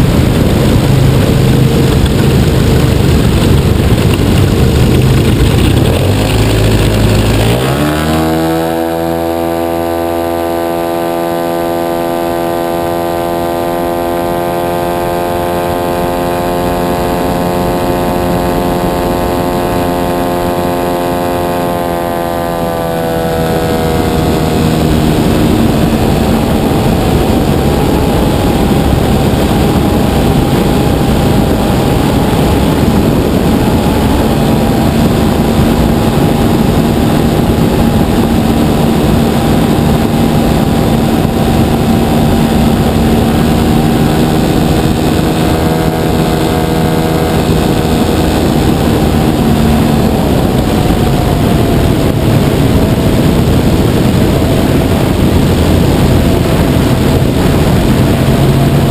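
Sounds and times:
wind rushing: 0.0s - 10.6s, 12.2s - 58.9s
model plane engine running: 0.0s - 58.9s.

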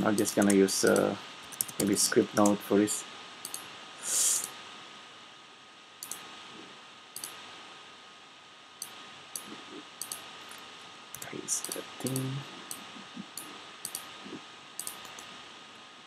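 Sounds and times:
faint steady hum: 0.0s - 16.0s
computer mouse clicks: 0.2s - 2.6s, 3.4s - 3.7s, 6.0s - 6.3s, 7.2s - 7.4s, 8.8s - 14.1s, 14.8s - 15.3s
short hiss: 3.4s - 4.6s.

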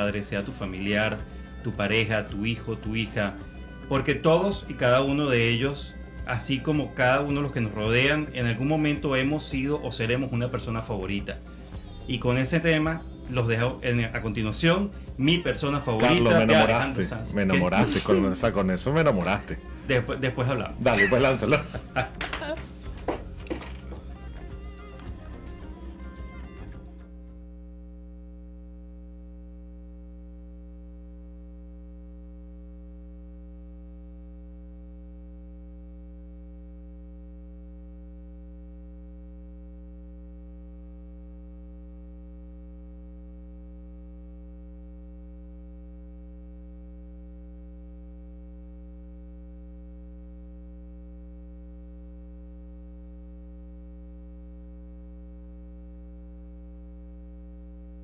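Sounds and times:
electrical hum: 0.0s - 58.0s.

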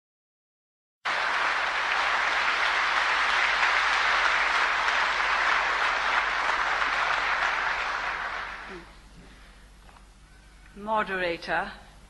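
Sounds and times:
audience applauding: 1.1s - 8.9s.

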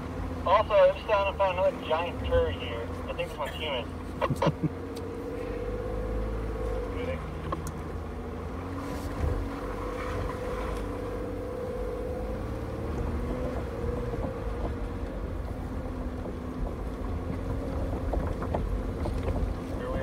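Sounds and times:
truck engine running slowly: 0.0s - 20.0s
knocks and clunks over bumps: 6.5s - 10.9s, 12.6s - 20.0s.

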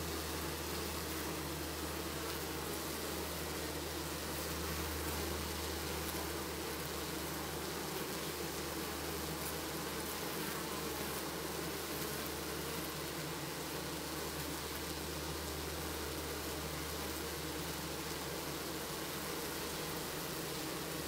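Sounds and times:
constant hiss: 0.0s - 21.0s
honeybees buzzing: 0.0s - 21.0s.

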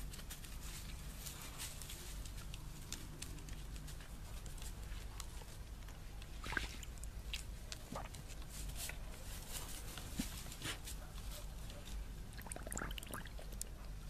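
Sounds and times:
dog splashing in water bowl: 6.4s - 8.4s, 12.3s - 13.6s
dog snuffling: 7.8s - 12.1s.

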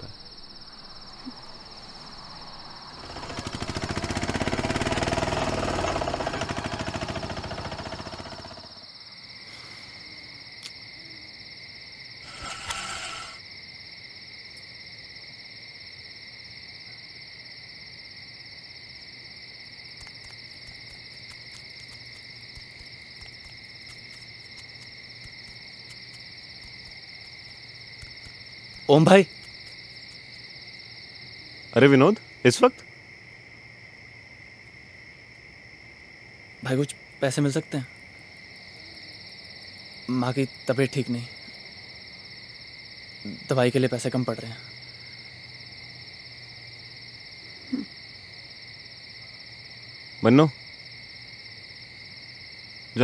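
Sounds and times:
crickets chirping: 0.0s - 53.0s
loud rapidly pulsing rumble: 3.0s - 8.6s.

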